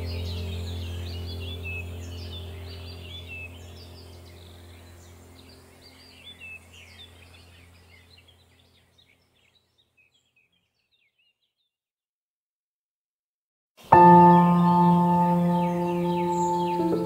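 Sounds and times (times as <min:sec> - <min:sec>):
low steady hum: 0:00.0 - 0:09.0, 0:14.0 - 0:17.0
songbirds chirping: 0:00.0 - 0:11.8, 0:13.8 - 0:17.0.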